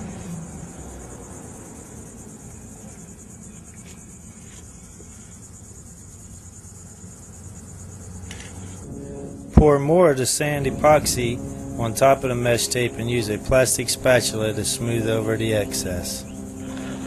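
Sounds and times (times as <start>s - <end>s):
insects trilling: 0.0s - 17.0s
low background rumble: 5.5s - 17.0s.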